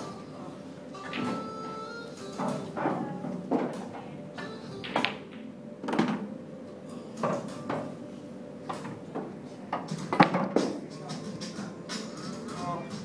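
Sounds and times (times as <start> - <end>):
pool balls clacking: 2.2 - 6.4, 7.2 - 8.0, 8.7 - 13.0.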